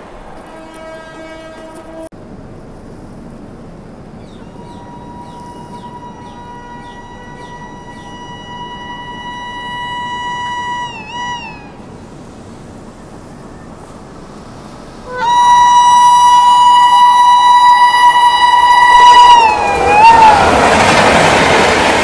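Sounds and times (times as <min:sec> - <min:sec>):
train horn blasts: 0:00.4 - 0:02.1, 0:04.4 - 0:11.9, 0:15.1 - 0:21.3.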